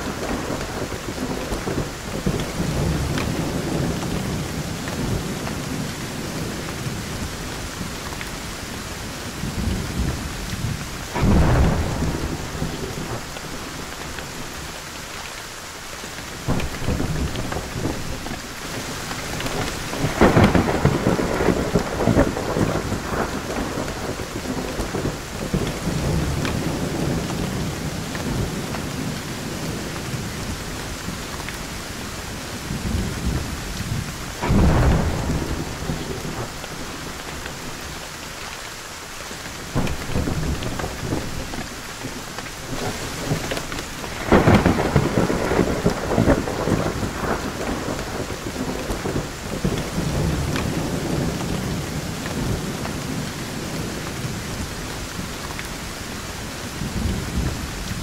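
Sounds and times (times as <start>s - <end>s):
steady rain: 0.0s - 58.0s
rolling thunder: 9.0s - 14.7s, 16.4s - 38.1s, 39.6s - 58.0s.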